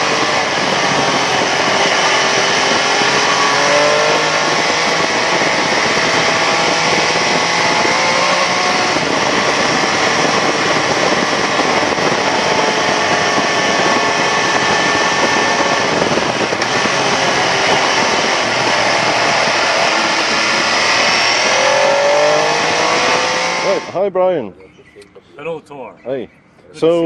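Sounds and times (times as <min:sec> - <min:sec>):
motorcycle engine running: 0:00.0 - 0:24.0
dense rushing noise: 0:00.0 - 0:24.1.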